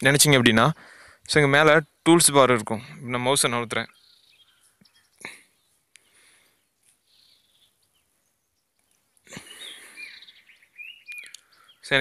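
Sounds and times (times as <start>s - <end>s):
outdoor noise: 0.0s - 12.0s
bird chirps: 3.6s - 12.0s.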